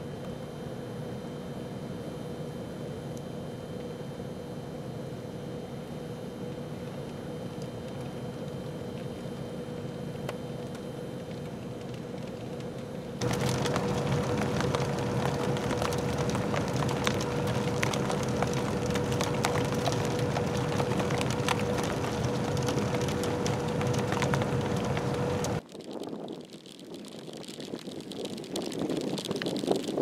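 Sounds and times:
thin steady whine: 0.0s - 30.0s
snow ticking: 13.2s - 30.0s.

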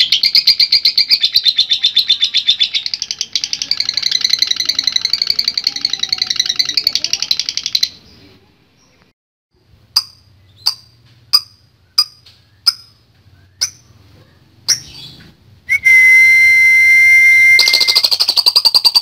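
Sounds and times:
rattling bird trill: 0.0s - 8.0s, 10.0s - 14.0s, 14.7s - 15.2s, 17.5s - 19.0s
sharp bird chirps: 10.0s - 15.3s, 17.5s - 19.0s
loud steady high whistle: 15.7s - 18.0s.

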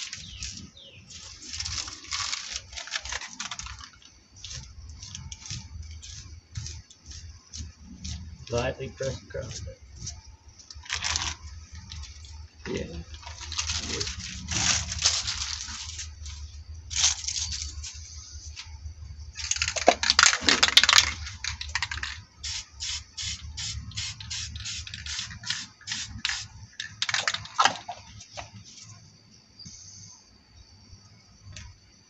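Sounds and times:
plastic sheet crinkling: 0.0s - 7.2s, 9.5s - 12.3s, 13.1s - 18.0s
spray paint can hissing: 4.4s - 8.3s, 19.4s - 27.4s.

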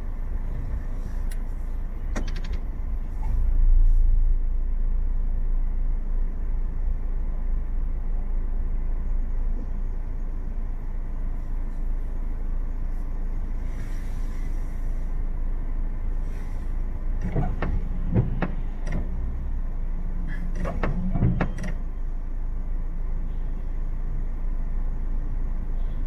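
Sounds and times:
idling traffic rumble: 0.0s - 26.0s
sharp clicks and knocks: 2.1s - 2.7s, 17.2s - 19.2s, 20.5s - 21.8s.

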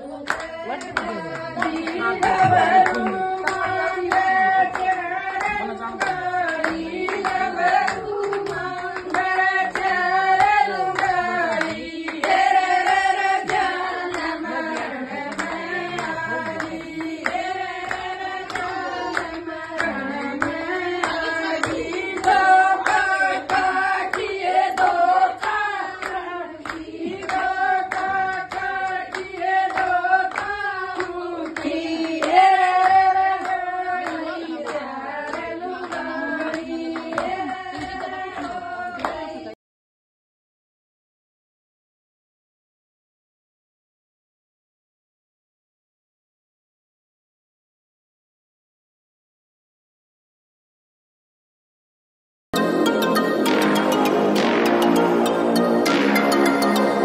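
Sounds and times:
women singing folk song: 0.0s - 39.6s
hand clapping: 0.2s - 39.4s, 52.6s - 57.0s.

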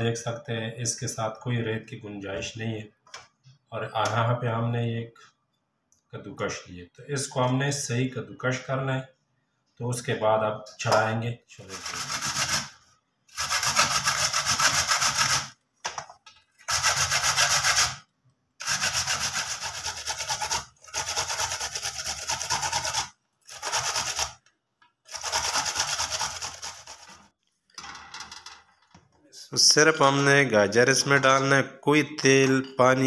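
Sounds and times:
carrots grated on metal grater: 11.7s - 12.7s, 13.3s - 15.5s, 16.6s - 18.0s, 18.6s - 24.4s, 25.1s - 27.3s.

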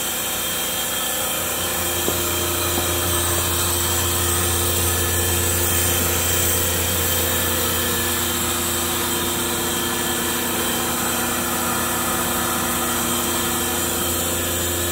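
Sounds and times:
machine electric hum with hiss: 0.0s - 14.9s.

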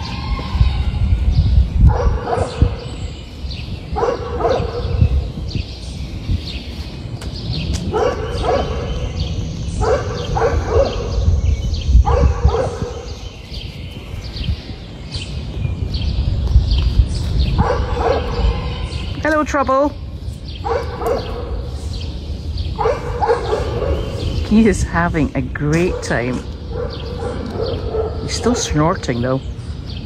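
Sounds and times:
dog barking: 1.9s - 2.9s, 3.9s - 5.2s, 7.9s - 9.0s, 9.8s - 11.3s, 12.0s - 13.2s, 17.5s - 18.8s, 20.6s - 21.8s, 22.7s - 24.4s, 25.7s - 29.2s.

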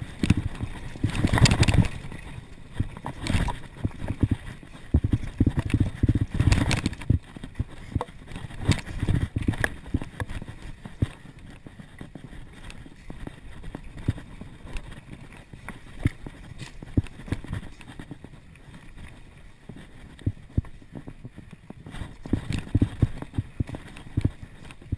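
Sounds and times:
bike clattering and rattling: 0.0s - 18.8s
bike tyres rumbling on dirt: 0.0s - 24.9s.

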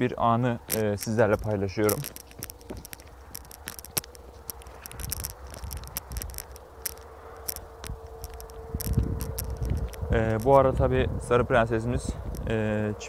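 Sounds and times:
chain leash clinking and rattling: 0.6s - 10.6s
low rumble: 0.6s - 13.0s.

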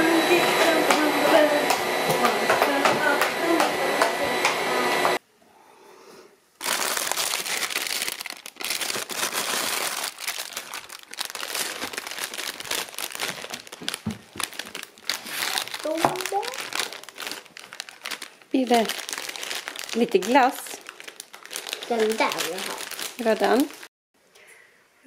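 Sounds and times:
steady whirring: 0.0s - 5.2s
plastic packaging crinkling: 6.6s - 23.9s.

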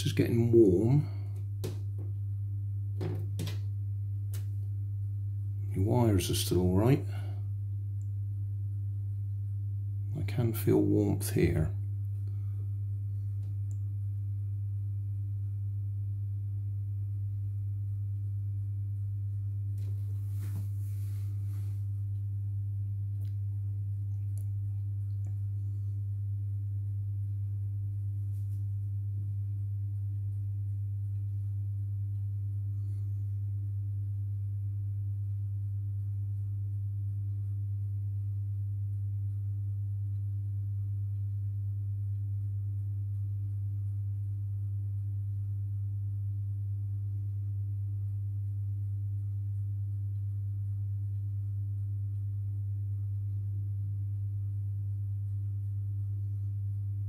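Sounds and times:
low electrical hum: 0.0s - 57.0s
faint rustle: 19.8s - 21.9s.

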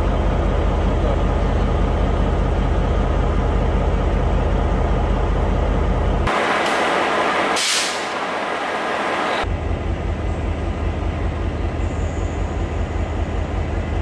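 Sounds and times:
locomotive engine idling: 0.0s - 7.5s
broad hiss: 7.5s - 8.2s.

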